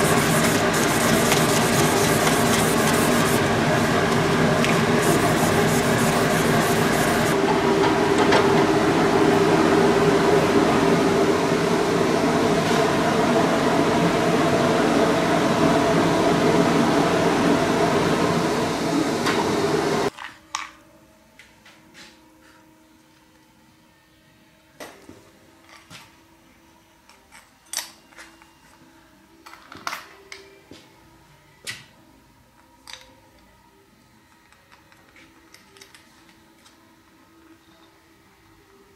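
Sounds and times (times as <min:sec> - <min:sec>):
rubbing strokes on turning wood: 0:00.0 - 0:03.4, 0:04.7 - 0:07.4
woodworking machinery droning: 0:00.0 - 0:20.1.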